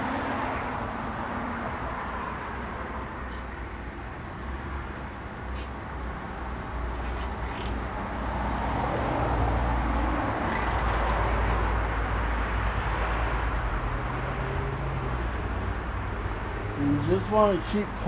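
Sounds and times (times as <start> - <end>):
netting clicks and rustles: 6.9 - 7.8, 10.4 - 11.3.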